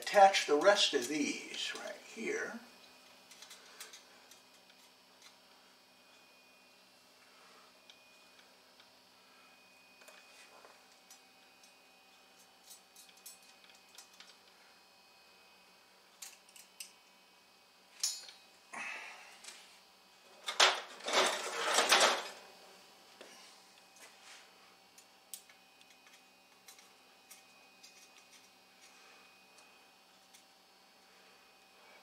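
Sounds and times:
metal antenna parts clinking: 0:18.0 - 0:18.4.

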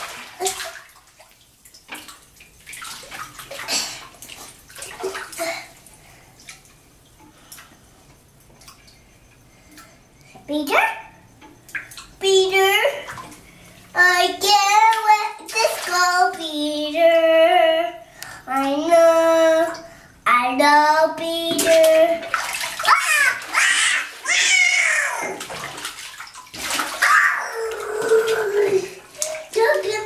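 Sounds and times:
bathwater splashing: 0:00.0 - 0:10.0, 0:11.5 - 0:16.7, 0:21.3 - 0:30.0.

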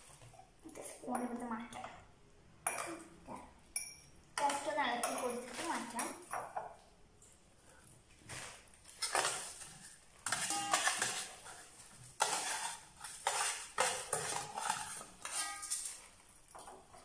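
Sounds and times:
glass clinks: 0:03.7 - 0:04.2, 0:10.3 - 0:11.0.

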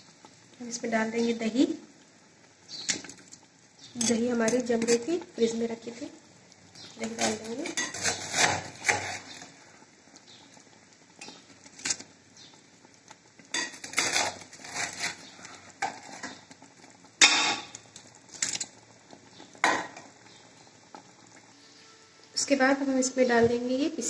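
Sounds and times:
metal spoon scraping a pot: 0:04.0 - 0:05.1, 0:07.0 - 0:09.5, 0:13.5 - 0:16.4.

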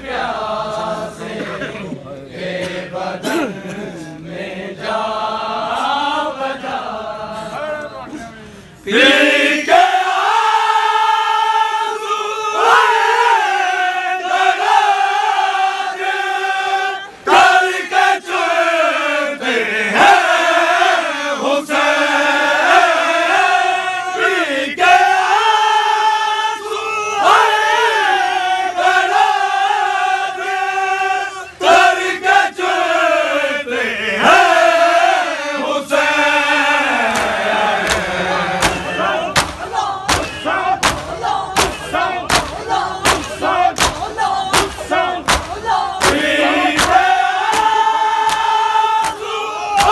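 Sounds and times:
men chanting a lament in unison: 0:00.0 - 0:49.9
hands striking bare chests: 0:37.1 - 0:49.2.

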